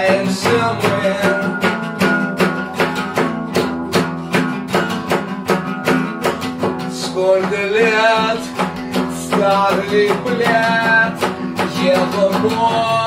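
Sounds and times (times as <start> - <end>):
man singing: 0.0 - 2.8, 6.6 - 13.0
acoustic guitar strumming: 0.0 - 13.0.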